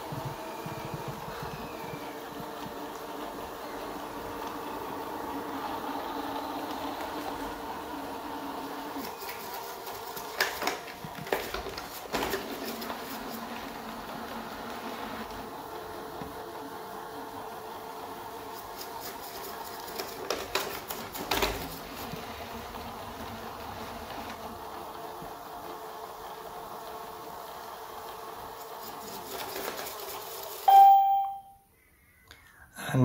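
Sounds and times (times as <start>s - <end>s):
robot vacuum whirring: 0.0s - 30.9s
short electronic beep: 30.7s - 31.6s.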